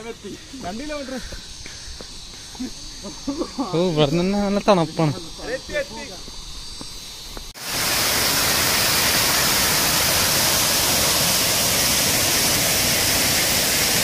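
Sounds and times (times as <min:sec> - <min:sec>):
waterfall roaring: 0:07.6 - 0:14.0.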